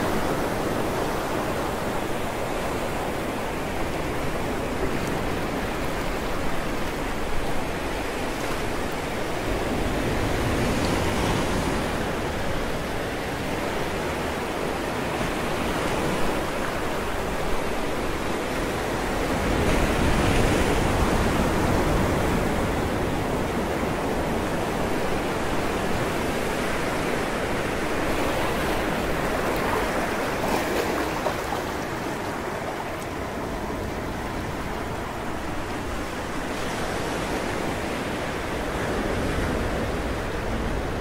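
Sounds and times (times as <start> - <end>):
sea waves breaking on rocks: 15.0 - 40.8.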